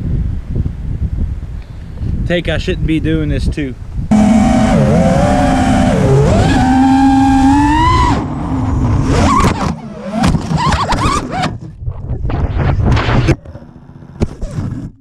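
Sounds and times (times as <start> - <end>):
quadcopter motors whining: 4.1 - 11.0
quadcopter crashing: 4.1 - 11.6.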